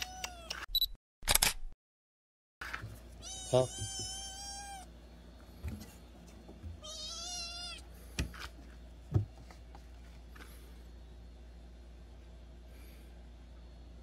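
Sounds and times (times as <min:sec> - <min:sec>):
kitten meowing: 0:03.2 - 0:04.9, 0:06.8 - 0:07.8.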